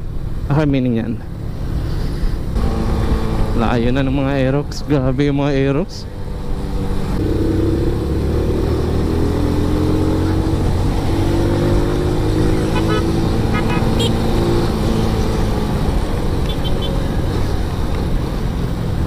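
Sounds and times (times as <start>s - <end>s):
motorcycle engine accelerating: 2.6s - 4.0s, 6.3s - 17.8s.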